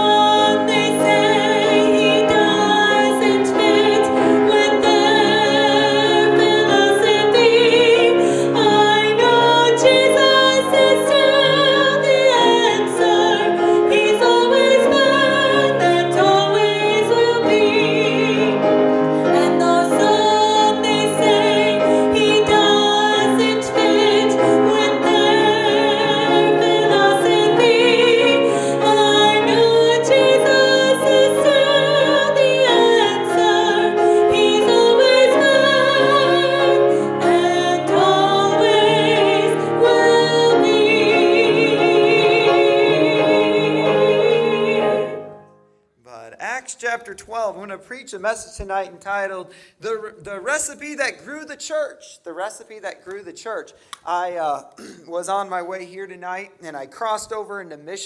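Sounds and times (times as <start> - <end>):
woman singing with vibrato: 0.0 - 45.2
piano: 0.0 - 46.2.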